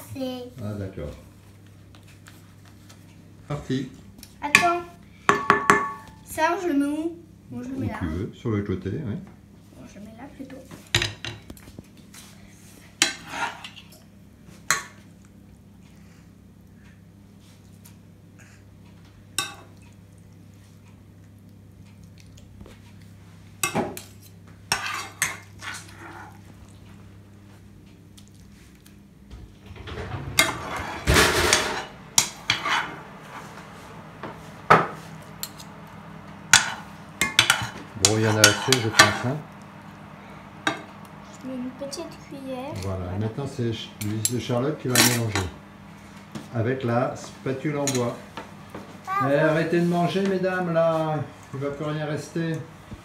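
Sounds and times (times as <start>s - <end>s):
metal spoons knocking cookware: 5.3s - 6.1s
metal spoons scraping a pan: 13.0s - 14.0s, 23.6s - 26.4s, 30.4s - 33.0s, 36.5s - 39.3s.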